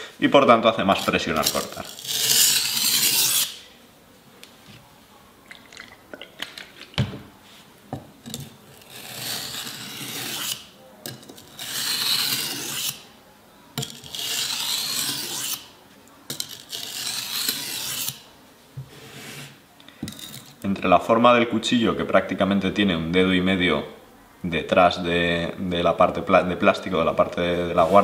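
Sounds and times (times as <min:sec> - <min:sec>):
knife scraping on sharpening stone: 0:01.4 - 0:03.6, 0:08.7 - 0:13.0, 0:13.8 - 0:15.7, 0:16.3 - 0:18.2.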